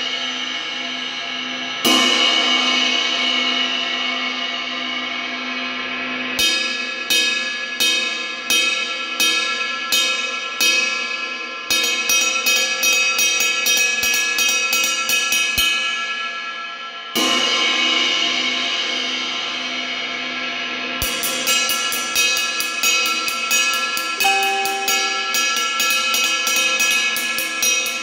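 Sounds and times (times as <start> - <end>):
ride cymbal struck with drumstick: 6.4 - 19.8, 21.0 - 28.0.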